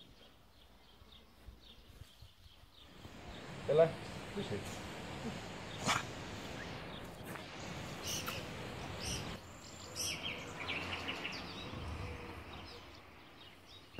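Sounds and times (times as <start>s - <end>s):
steady background hiss: 2.8s - 13.9s
bird chirps: 5.6s - 13.9s.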